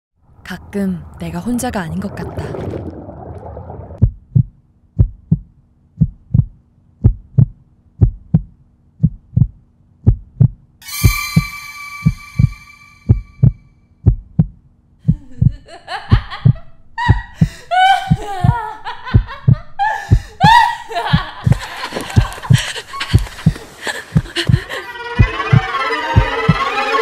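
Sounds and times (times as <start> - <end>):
heartbeat thumps: 4.0 - 26.8
high ringing tone: 10.8 - 13.8.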